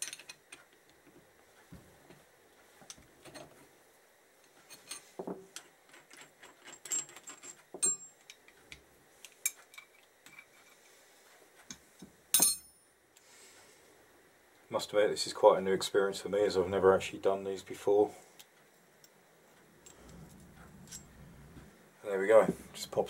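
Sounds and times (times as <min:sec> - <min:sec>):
metal parts clattering on bench: 0:00.0 - 0:00.6, 0:04.7 - 0:08.1.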